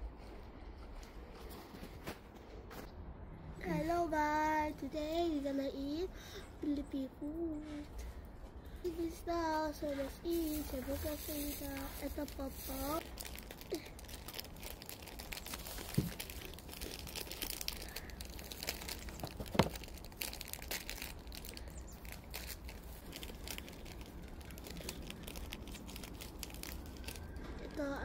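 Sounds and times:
plastic wrapper crinkling: 0:10.2 - 0:28.0.

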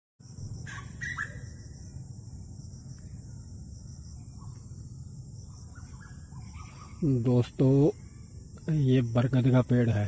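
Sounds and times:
low rumble: 0:00.2 - 0:06.4
insects chorus: 0:00.2 - 0:10.0.

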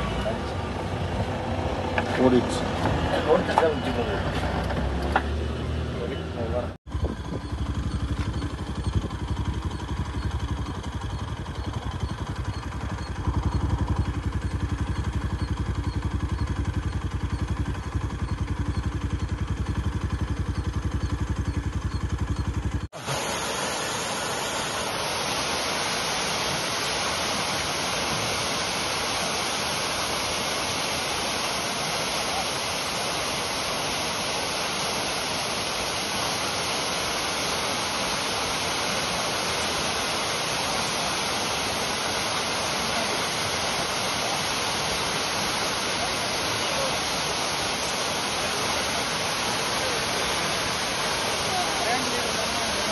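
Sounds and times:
vehicle engine throbbing: 0:00.0 - 0:52.9
waterfall rushing: 0:23.0 - 0:52.9.

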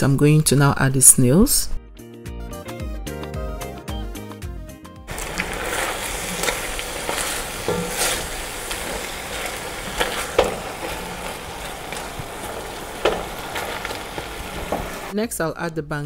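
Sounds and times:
spatula scraping a pot: 0:05.1 - 0:15.1
sizzling hiss: 0:05.1 - 0:15.2.

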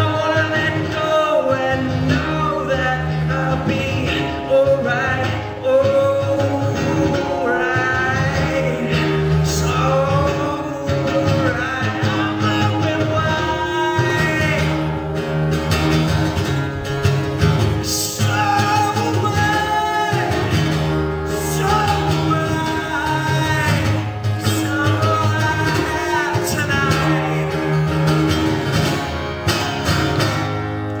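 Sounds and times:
man singing: 0:00.0 - 0:15.4, 0:17.7 - 0:28.9
strummed acoustic guitar: 0:00.0 - 0:31.0.

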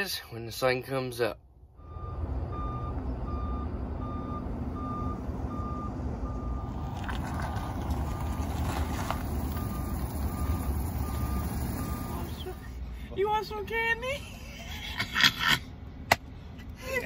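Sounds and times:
engine rumble: 0:00.0 - 0:17.0
truck backup alarm beeping: 0:01.7 - 0:06.9, 0:09.1 - 0:12.8.

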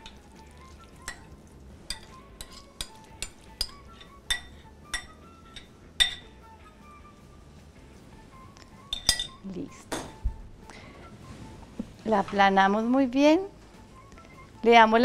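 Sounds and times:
soft background music: 0:00.0 - 0:15.0
utensil clinking on glass bowl: 0:01.0 - 0:01.3, 0:01.9 - 0:06.3, 0:08.9 - 0:09.4.

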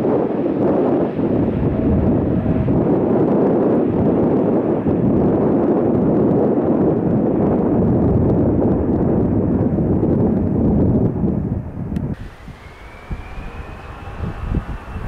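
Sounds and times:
jet engines roaring: 0:00.0 - 0:07.3, 0:12.0 - 0:15.0.

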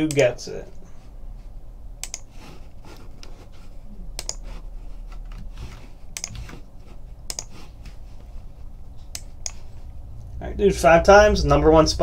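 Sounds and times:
keyboard typing: 0:00.1 - 0:00.3, 0:02.0 - 0:02.3, 0:04.2 - 0:04.6, 0:05.3 - 0:08.0, 0:09.1 - 0:09.7.

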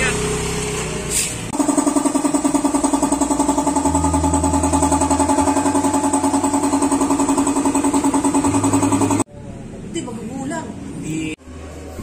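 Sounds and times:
belt drive whine: 0:01.6 - 0:09.3
scooter engine idling: 0:01.6 - 0:09.3.

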